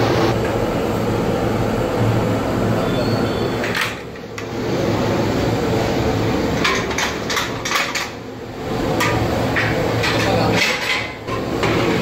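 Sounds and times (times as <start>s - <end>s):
steady low hum: 0.0s - 12.0s
metal pots and utensils clanking: 6.5s - 8.2s, 8.9s - 12.0s.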